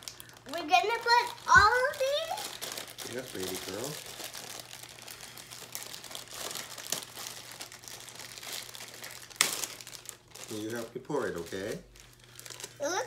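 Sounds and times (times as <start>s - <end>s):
plastic bag crinkling: 0.0s - 13.0s
plastic bag snap: 9.1s - 10.2s.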